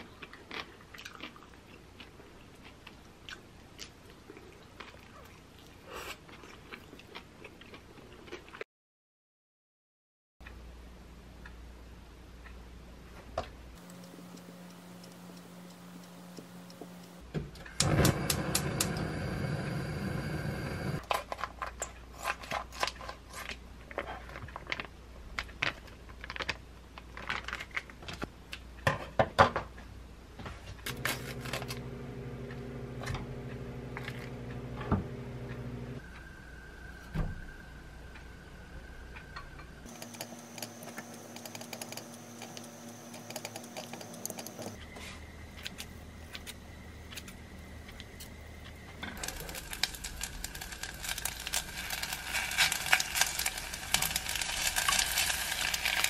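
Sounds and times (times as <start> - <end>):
low room hum: 10.4 - 28.9, 29.6 - 56.0.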